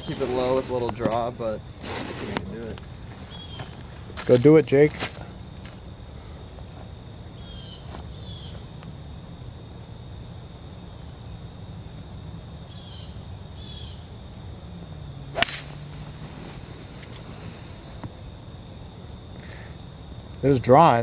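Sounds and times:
golf iron striking ball: 15.3 - 16.0.

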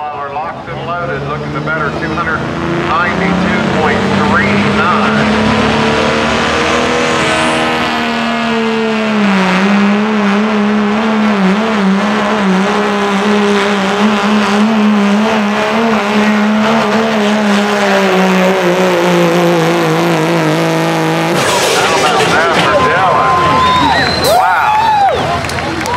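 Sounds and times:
diesel engine droning under load: 0.0 - 25.9
high whistle: 23.5 - 25.3.

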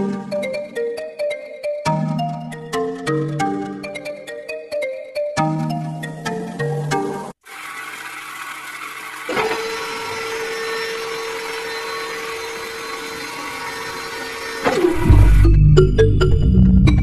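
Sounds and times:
small motor whirring: 7.4 - 15.4.

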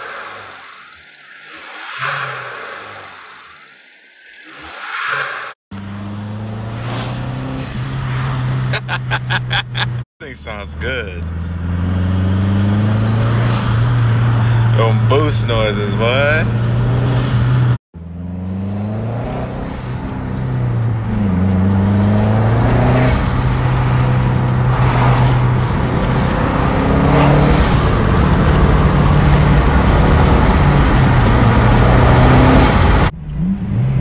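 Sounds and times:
car engine accelerating: 0.0 - 34.0
road noise: 0.0 - 34.0.

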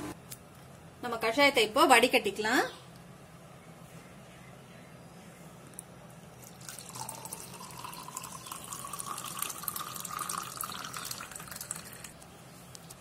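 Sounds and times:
liquid pouring into glass: 6.4 - 12.2.

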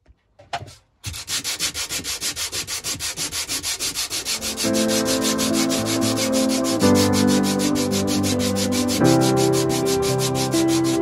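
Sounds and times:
sanding sponge scrubbing sheet metal: 1.1 - 11.0
background music: 4.1 - 11.0.

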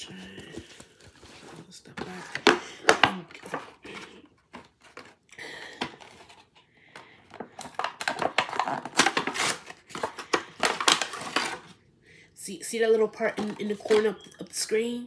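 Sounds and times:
plastic packaging rustling: 0.0 - 11.8, 13.2 - 14.3
packaging clicking: 7.3 - 11.7.

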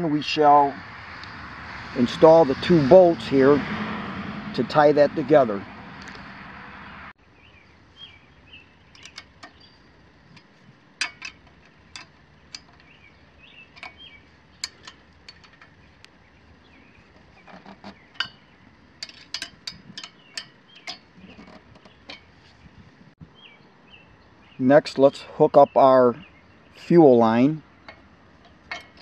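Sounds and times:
faint birds chirping: 4.8 - 29.0
wrench clicking on bolts: 9.0 - 9.6, 10.4 - 13.0, 13.7 - 15.8, 17.5 - 22.3.

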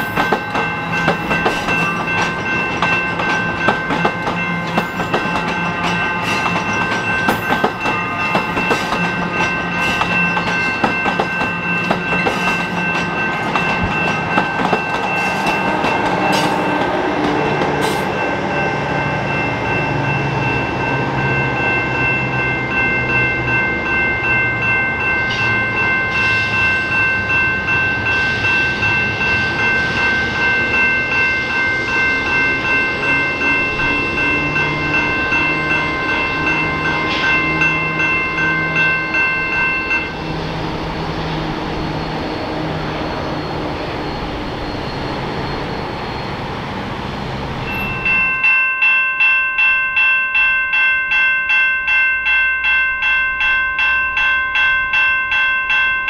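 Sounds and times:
train wheels clicking over rails: 0.0 - 18.2
train engine tones: 0.0 - 48.5
high ringing tones: 0.0 - 56.0.

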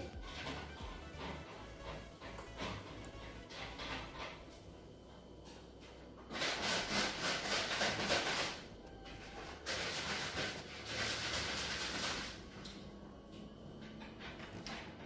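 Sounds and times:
wet mop swishing on tile floor: 6.9 - 12.4.

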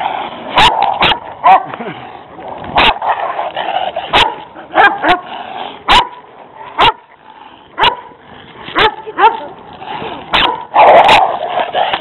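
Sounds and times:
dogs barking: 0.5 - 1.8, 2.7 - 7.1, 7.8 - 8.2, 10.3 - 12.0.

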